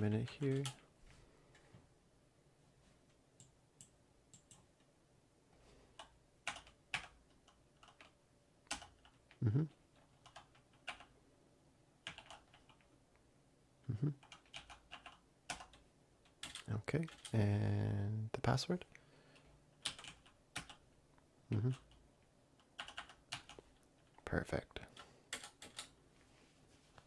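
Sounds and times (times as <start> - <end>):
mechanical keyboard typing: 0.1 - 0.8, 3.4 - 4.6, 6.0 - 9.3, 9.9 - 11.1, 12.0 - 12.9, 14.2 - 17.4, 19.8 - 20.8, 22.6 - 24.2, 25.3 - 26.0.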